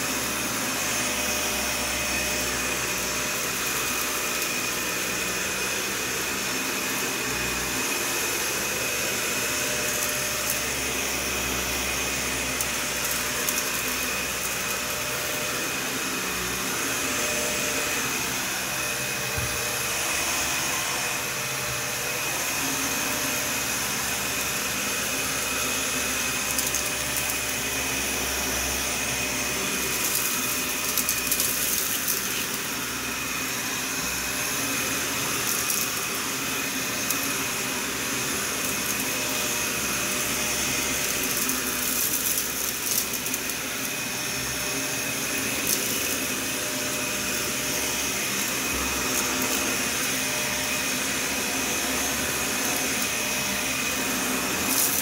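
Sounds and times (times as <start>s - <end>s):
vacuum cleaner running on carpet: 0.0s - 55.0s
salt crunching in vacuum: 29.8s - 32.6s, 40.2s - 43.5s, 54.5s - 55.0s.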